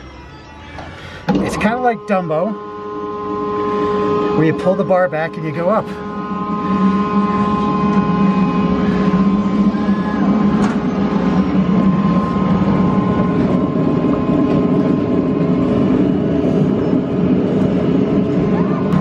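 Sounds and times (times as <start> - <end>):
faint machinery whine: 0.0 - 19.0
ride machinery humming: 0.0 - 19.0.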